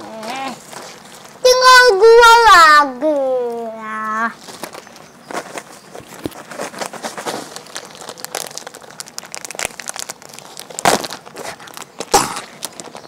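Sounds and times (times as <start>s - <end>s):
plastic packets crinkling: 0.2s - 1.9s, 3.1s - 13.0s.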